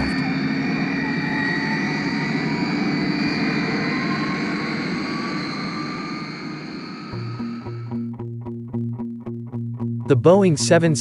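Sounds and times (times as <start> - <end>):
jet airliner taking off: 0.0 - 8.0.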